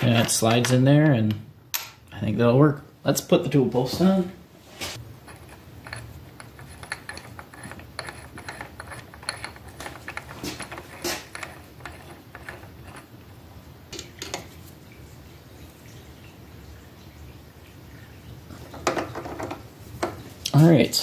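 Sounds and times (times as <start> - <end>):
steel parts clicking and scraping: 5.2 - 13.1.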